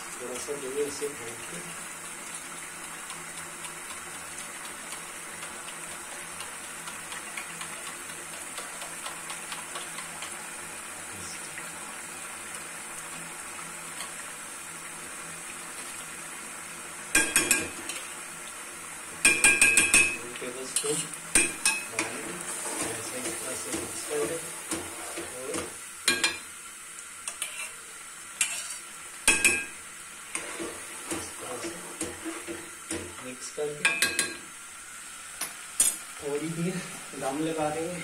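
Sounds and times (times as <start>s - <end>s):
curry sizzling in a metal pan: 0.0s - 38.0s
metal spoon scraping a plate: 27.3s - 27.8s, 28.4s - 28.8s.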